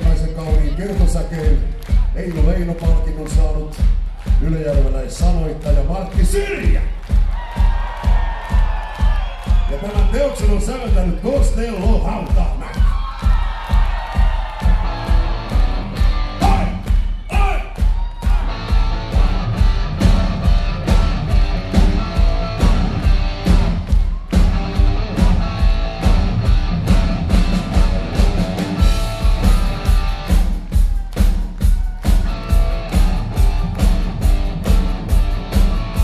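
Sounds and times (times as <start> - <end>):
drum kit beat: 0.0 - 36.0
electric guitars: 18.3 - 30.7.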